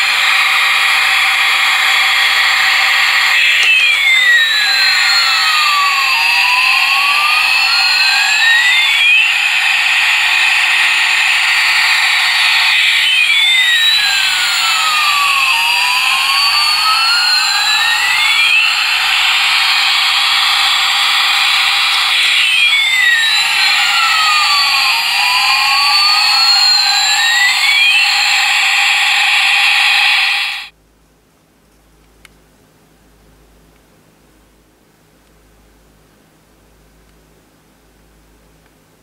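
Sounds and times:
toy jet engine sound effect: 0.0s - 30.7s.

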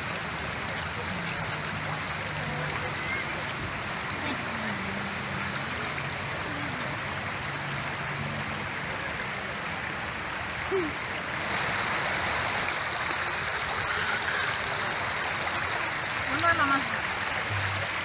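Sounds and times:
water rushing in fountain channel: 0.0s - 18.0s.

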